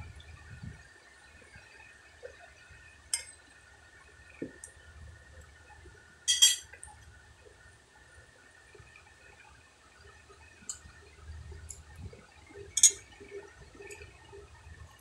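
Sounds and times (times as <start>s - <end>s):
metal spoon clinking on plate: 6.3s - 6.7s, 12.8s - 13.0s.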